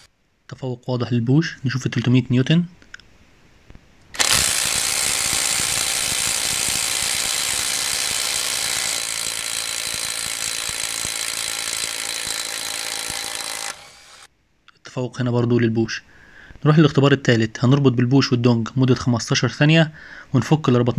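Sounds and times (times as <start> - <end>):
impact wrenches hammering lug nuts: 4.2 - 13.8.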